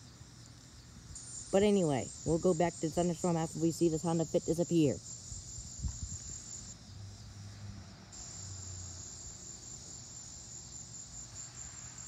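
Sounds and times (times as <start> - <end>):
crickets chirping: 0.0 - 12.0
car driving away: 6.8 - 9.0.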